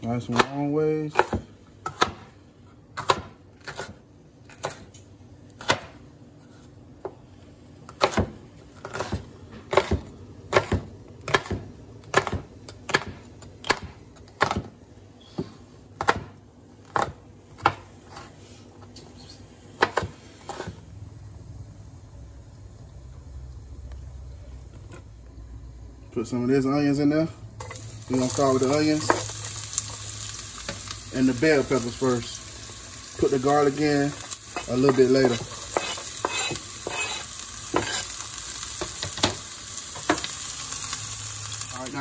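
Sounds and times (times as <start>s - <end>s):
knife chopping on cutting board: 0.3s - 2.3s, 3.0s - 4.9s, 5.6s - 6.0s, 7.9s - 14.7s, 15.4s - 18.4s, 19.8s - 20.8s, 34.6s - 38.1s.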